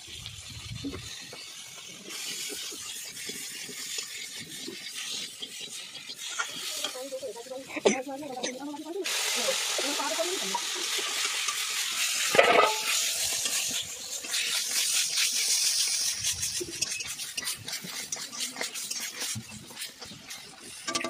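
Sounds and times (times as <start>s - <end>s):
food sizzling in hot oil: 0.0s - 21.0s
metal spatula scraping pan: 9.7s - 15.3s, 16.6s - 21.0s.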